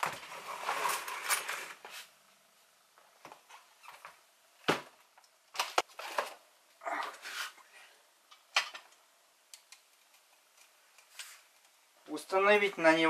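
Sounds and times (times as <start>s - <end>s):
scraping and shuffling: 0.0s - 2.2s.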